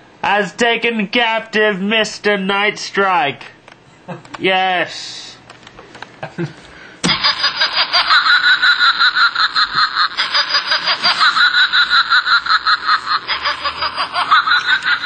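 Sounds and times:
toy laughing through speaker: 7.1s - 15.0s.

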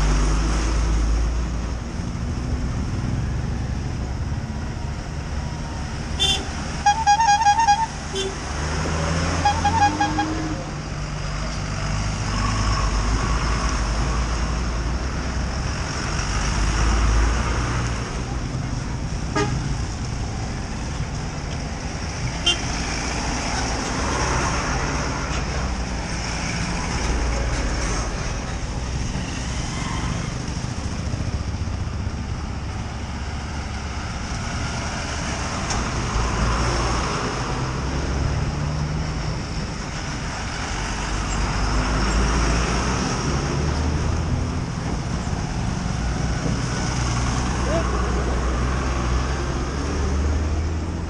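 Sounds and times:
vehicles passing by: 0.0s - 51.0s
vehicle horns tooting: 6.2s - 8.4s, 9.4s - 10.5s, 19.4s - 19.6s, 22.4s - 22.7s.

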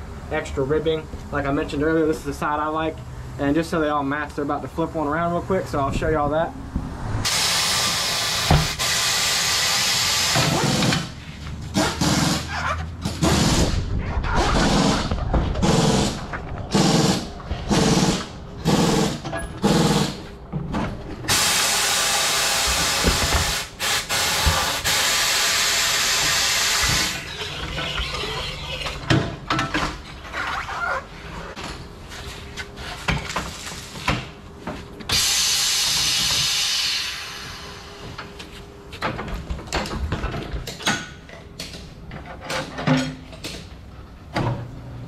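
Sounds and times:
air hissing from tire valve: 7.2s - 10.4s, 21.3s - 27.2s, 35.1s - 38.0s.

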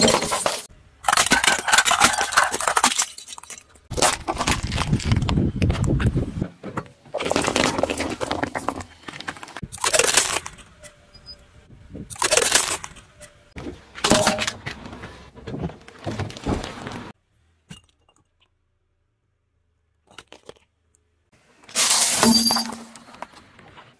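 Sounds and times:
tyre crushing plastic toys: 0.0s - 6.1s, 7.1s - 10.7s, 12.1s - 13.2s, 21.7s - 23.3s.

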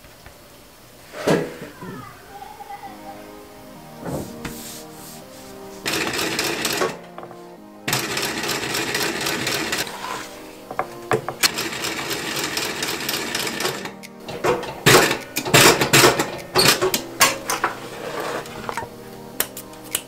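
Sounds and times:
sewing machine stitching leather: 5.9s - 7.0s, 7.9s - 10.3s.

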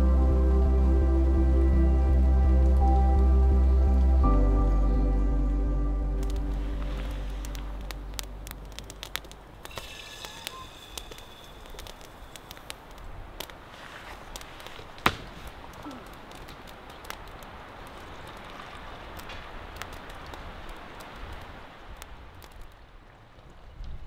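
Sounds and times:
background music: 0.0s - 9.4s
cooking fire crackling: 6.2s - 22.9s
fire popping: 6.2s - 22.9s.

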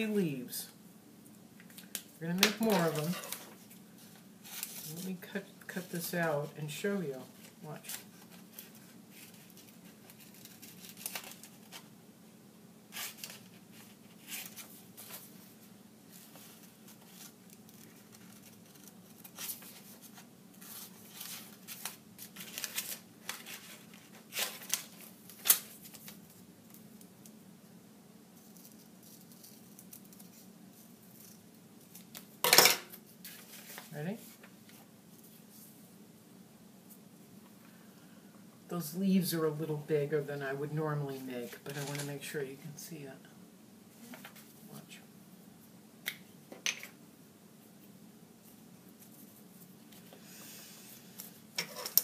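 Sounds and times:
paper handling: 7.3s - 11.9s, 12.9s - 26.8s, 41.5s - 42.2s.

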